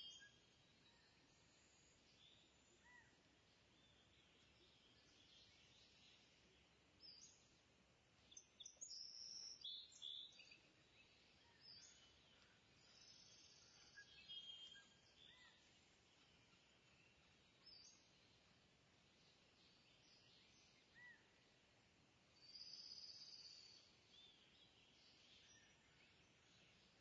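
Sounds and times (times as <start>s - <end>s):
faint high-pitched chirps: 0.0s - 3.2s, 8.3s - 18.2s.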